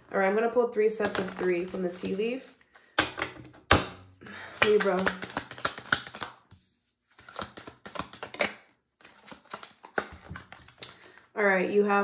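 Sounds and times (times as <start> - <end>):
cards being shuffled: 1.0 - 3.6, 4.4 - 11.3.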